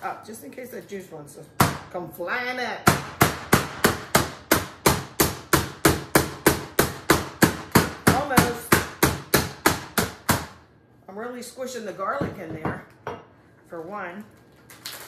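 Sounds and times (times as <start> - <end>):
meat mallet pounding chicken: 2.9 - 10.6.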